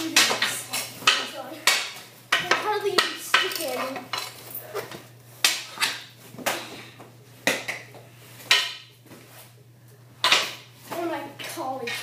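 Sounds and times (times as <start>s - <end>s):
hockey stick and puck clacking: 0.0s - 4.2s.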